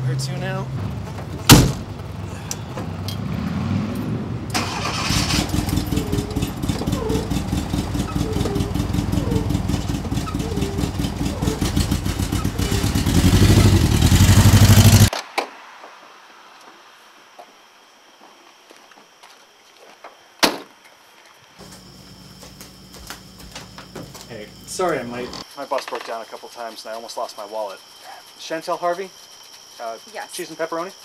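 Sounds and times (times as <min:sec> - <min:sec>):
engine starting and running: 0:00.0 - 0:15.1, 0:21.6 - 0:25.4.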